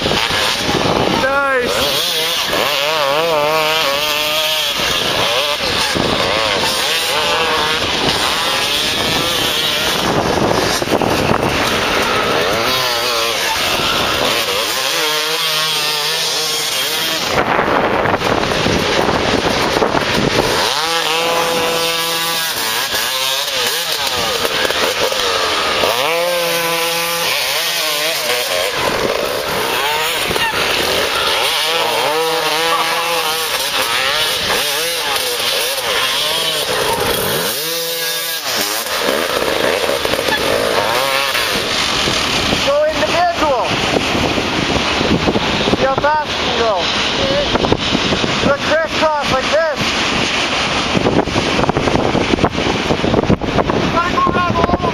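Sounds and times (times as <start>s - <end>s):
dirt bike engines revving: 0.0s - 54.9s.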